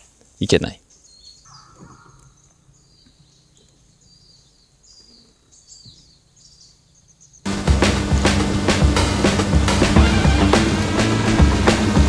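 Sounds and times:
faint bird chirps: 0:00.3 - 0:07.5.

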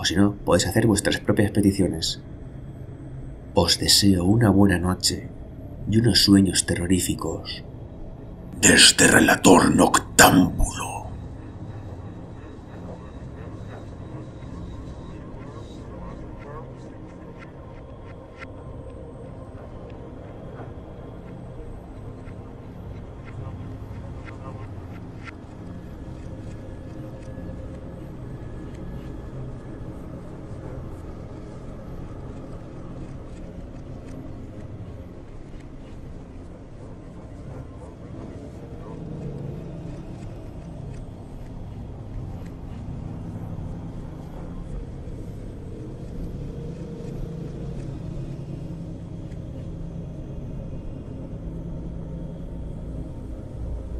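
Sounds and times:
low rumbling drone: 0:07.4 - 0:53.9.

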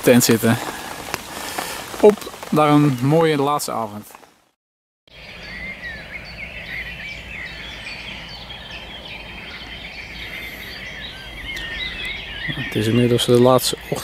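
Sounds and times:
birds chirping and whistling: 0:05.1 - 0:14.0.

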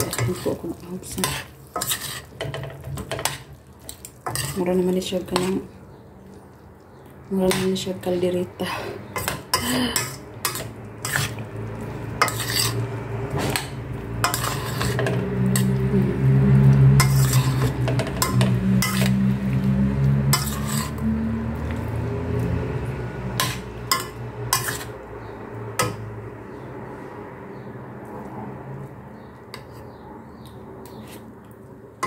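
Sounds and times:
low steady hum: 0:03.9 - 0:26.7
dishes and cutlery clinking: 0:12.2 - 0:12.8.

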